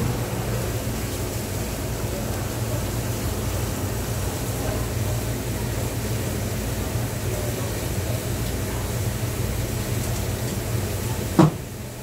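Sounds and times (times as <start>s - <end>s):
low machinery hum: 0.0s - 7.7s.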